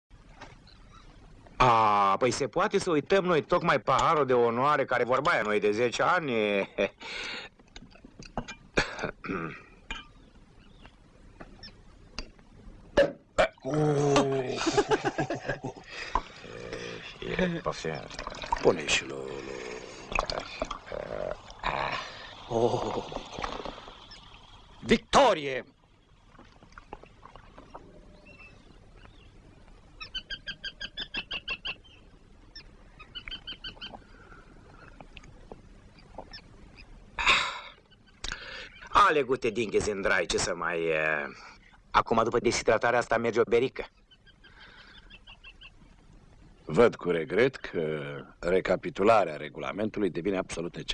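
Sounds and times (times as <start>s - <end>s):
cork popping: 13.0s - 14.3s, 20.1s - 21.6s, 22.7s - 24.2s
wine foaming over: 13.4s - 25.6s.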